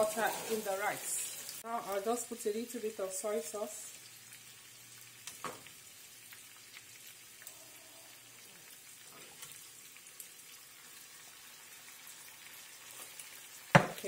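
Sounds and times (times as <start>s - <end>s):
vegetables sizzling in butter: 0.0s - 14.0s.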